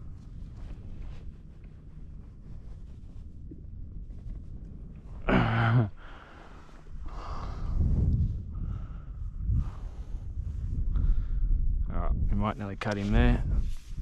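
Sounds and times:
steady low rumble: 0.0 - 14.0
man sighing: 5.2 - 6.4
rushing breath-like noise: 6.0 - 11.5.

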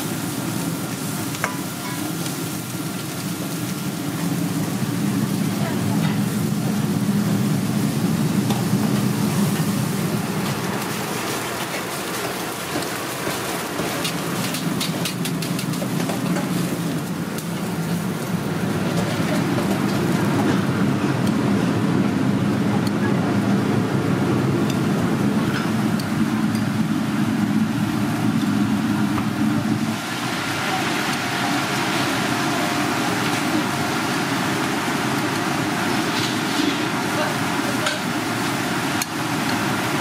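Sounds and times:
gas burner and extractor roar: 0.0 - 40.0.

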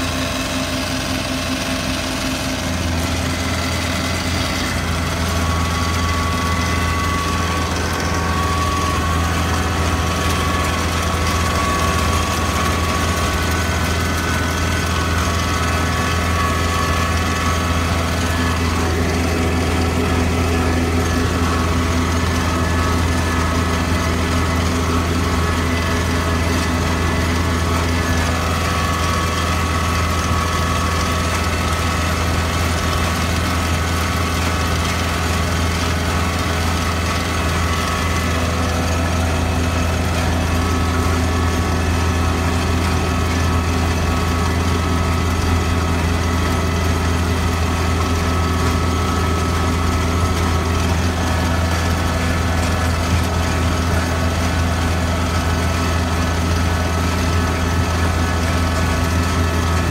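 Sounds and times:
vehicle engine humming: 0.0 - 59.9.

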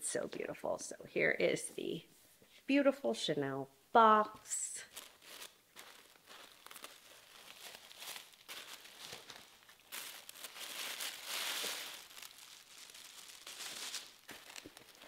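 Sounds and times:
tissue paper rustling: 4.8 - 15.0.

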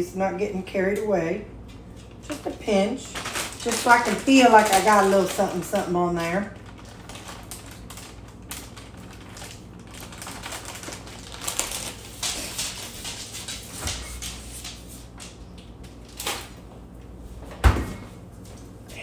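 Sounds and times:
steady low hum: 0.0 - 19.0
plastic bag rustling: 2.0 - 15.3.

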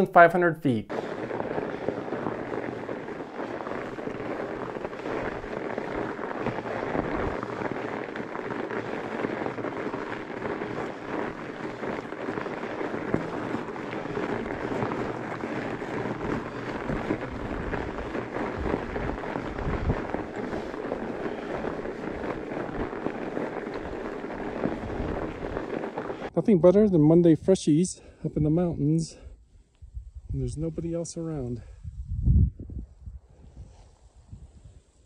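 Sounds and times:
bike tyres crunching through snow: 0.0 - 27.7.

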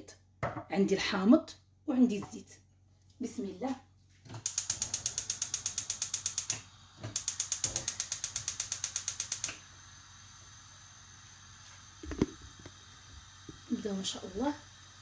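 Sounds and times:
gas hob igniter clicking: 4.4 - 9.7, 12.0 - 12.8
gas burner hissing: 4.4 - 15.0.

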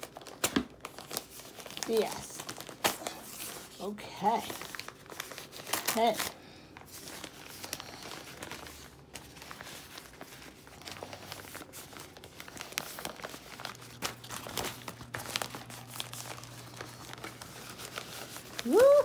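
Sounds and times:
newspaper crinkling and rustling: 0.0 - 19.0.

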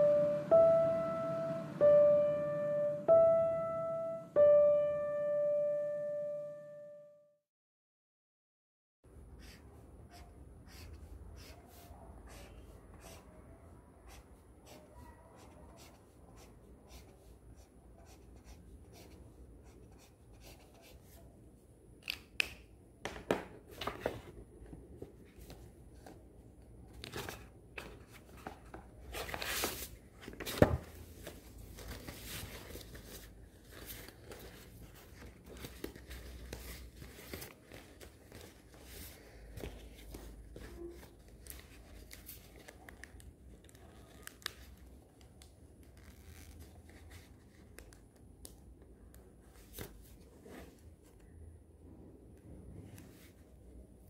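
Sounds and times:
paper rustling and crinkling: 26.9 - 48.0.

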